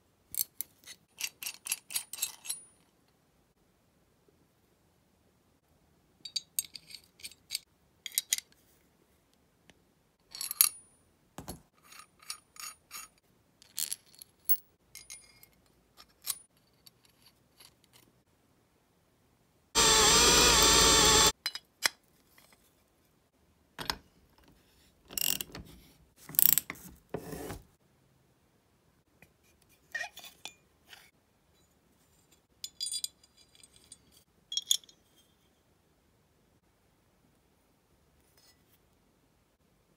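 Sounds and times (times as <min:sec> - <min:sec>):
steel parts clicking and clinking: 0:00.3 - 0:02.9, 0:25.1 - 0:25.6.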